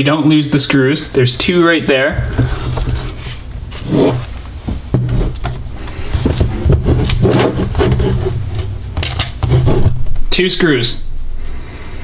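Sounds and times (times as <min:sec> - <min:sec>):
laptop case scraping: 0:02.3 - 0:04.4, 0:05.0 - 0:10.0.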